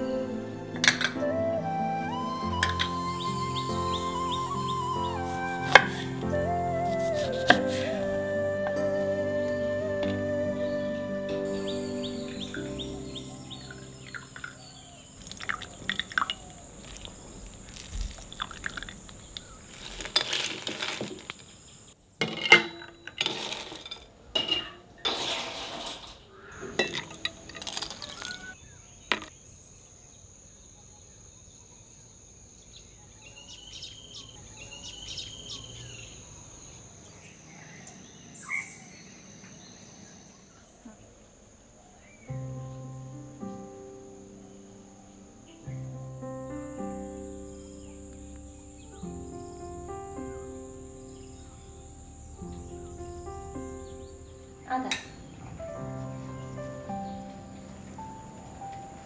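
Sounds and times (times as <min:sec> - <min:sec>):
bird chirps: 0:00.0 - 0:20.1, 0:27.9 - 0:31.9, 0:32.6 - 0:58.9
high-pitched insect drone: 0:10.5 - 0:19.6
glass and ice clinking: 0:15.2 - 0:16.4, 0:22.2 - 0:24.8, 0:26.8 - 0:28.4
liquid pouring into glasses: 0:15.2 - 0:16.4, 0:18.2 - 0:19.0.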